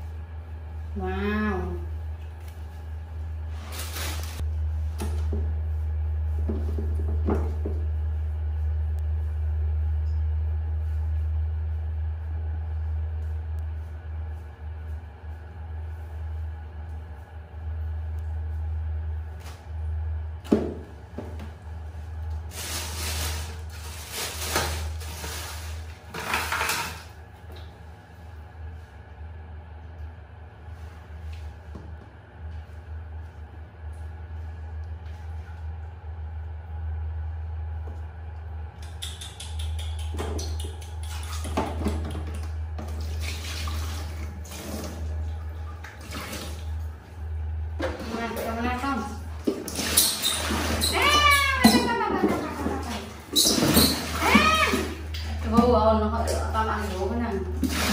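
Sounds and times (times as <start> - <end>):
steady low hum: 0.0 - 57.9
knock on plastic tub: 6.4 - 7.8
water splashing in a tub: 40.2 - 57.9.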